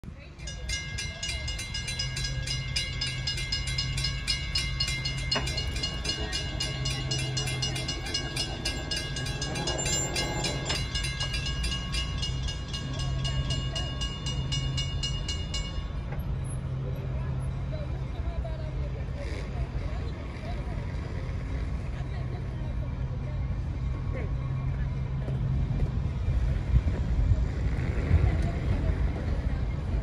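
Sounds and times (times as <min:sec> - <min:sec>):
low engine rumble: 0:00.0 - 0:30.0
crossing warning bell ringing: 0:00.1 - 0:17.7.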